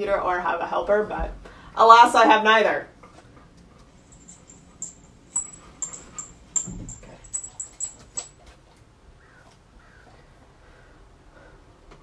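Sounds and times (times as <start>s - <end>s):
dog tags clinking: 3.9s - 8.5s.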